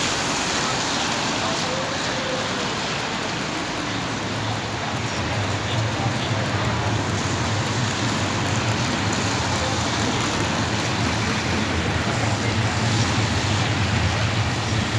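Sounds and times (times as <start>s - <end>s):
rain: 0.0s - 14.9s
traffic engines running: 0.0s - 14.9s
tyres hissing on wet asphalt: 0.0s - 14.9s.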